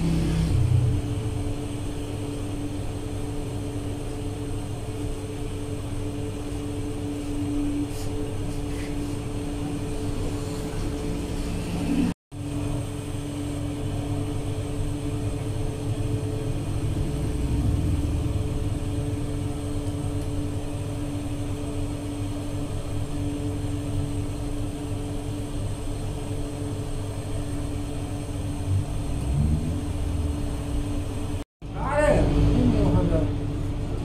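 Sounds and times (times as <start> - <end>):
oven machine hum: 0.0 - 34.0.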